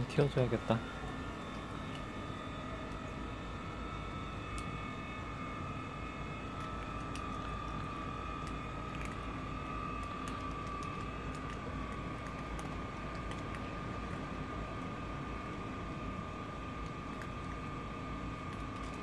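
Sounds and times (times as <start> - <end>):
steady background hum: 0.0 - 19.0
thin high whine: 0.0 - 19.0
cats crunching dry kibble: 6.1 - 14.4, 16.8 - 17.6, 18.4 - 19.0.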